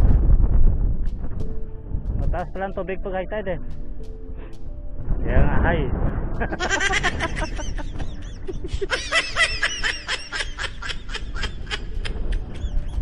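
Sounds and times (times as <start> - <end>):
wind rumble on microphone: 0.0 - 13.0
small birds chirping: 12.2 - 13.0.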